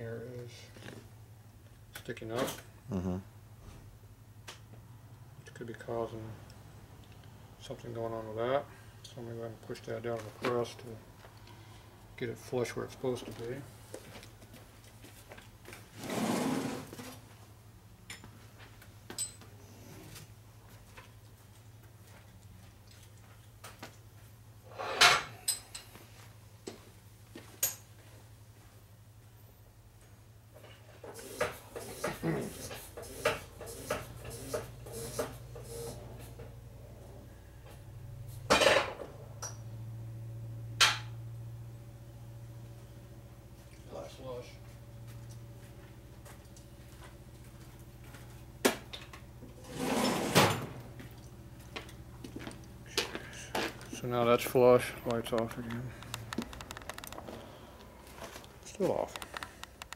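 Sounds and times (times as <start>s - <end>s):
low electrical hum: 0.0s - 59.9s
sharp metallic clicks and knocks: 55.1s - 57.3s.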